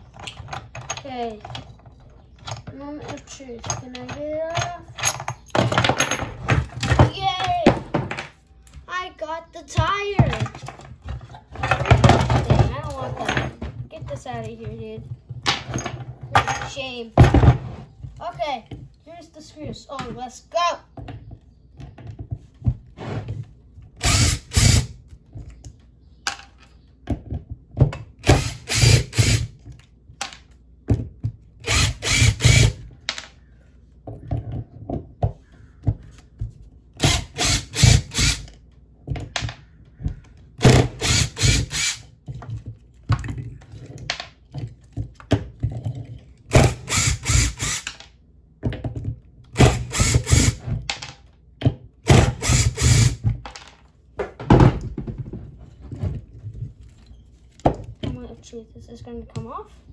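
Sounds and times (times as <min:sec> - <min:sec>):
cordless drill running: 0:24.0 - 0:25.0, 0:28.2 - 0:29.6, 0:31.6 - 0:32.8, 0:37.0 - 0:38.5, 0:40.6 - 0:42.0, 0:46.5 - 0:47.9, 0:49.6 - 0:50.6, 0:52.1 - 0:53.2
handling knocks and clicks: 0:42.2 - 0:46.5.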